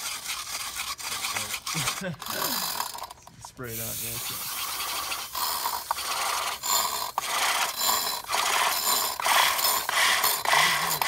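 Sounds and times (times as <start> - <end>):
ratchet wrench clicking: 3.9 - 11.0.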